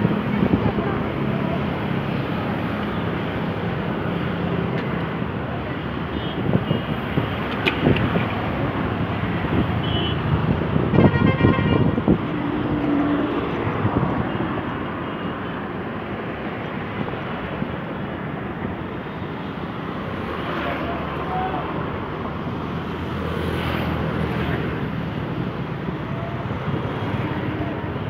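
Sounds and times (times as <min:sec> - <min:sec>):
traffic engines rumbling: 0:00.0 - 0:28.0
vehicle horns honking: 0:09.8 - 0:12.1.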